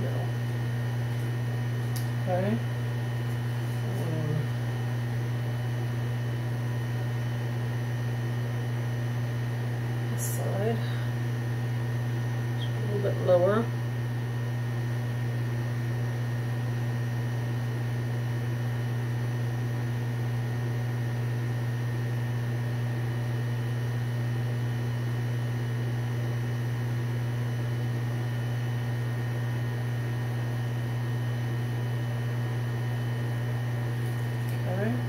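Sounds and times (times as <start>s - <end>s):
low hum with faint hiss: 0.0s - 35.0s.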